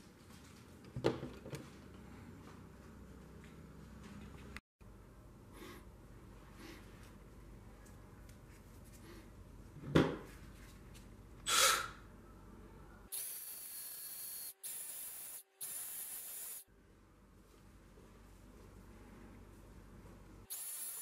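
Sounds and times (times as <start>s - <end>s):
aerosol spray can hissing: 13.1s - 16.6s, 20.5s - 21.0s.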